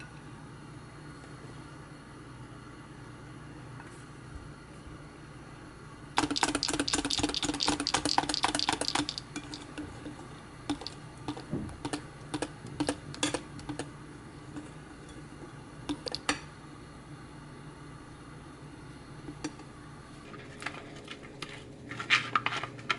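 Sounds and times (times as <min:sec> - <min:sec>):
whisk clicking against glass bowl: 0:06.2 - 0:09.7, 0:10.7 - 0:11.4.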